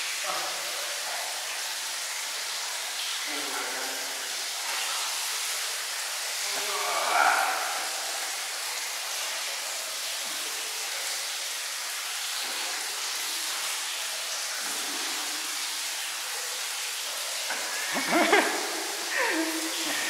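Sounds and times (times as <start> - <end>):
water and foam hissing: 3.2 - 11.8, 12.4 - 20.0.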